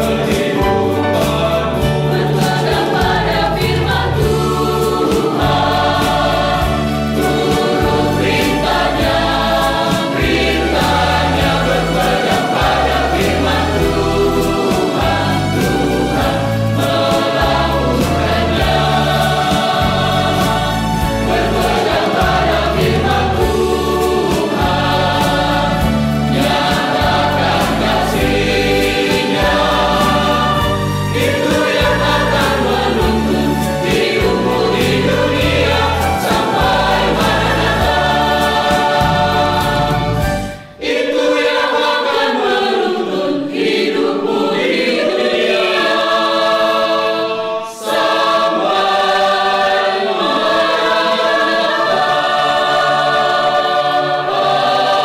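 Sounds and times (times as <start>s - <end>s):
instrumental backing with bass: 0.0s - 41.6s
mixed choir singing: 0.0s - 55.0s.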